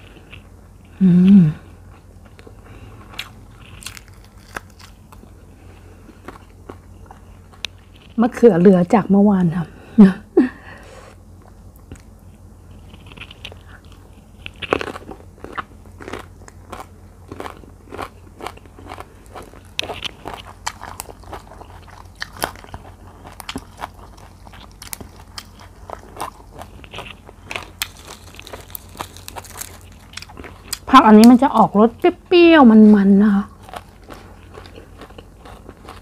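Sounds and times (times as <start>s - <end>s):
crunching and chewing: 0.0s - 1.0s, 1.6s - 8.4s, 11.4s - 32.1s, 33.4s - 36.0s.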